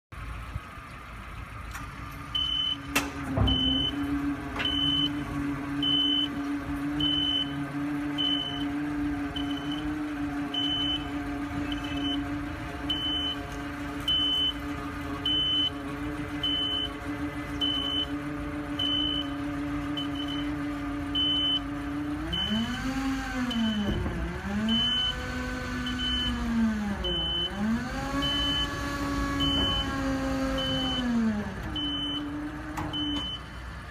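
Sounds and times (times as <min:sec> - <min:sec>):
truck engine and hydraulics humming: 0:00.1 - 0:33.9
high warning beeper: 0:02.4 - 0:04.0, 0:10.5 - 0:12.3, 0:31.8 - 0:32.3.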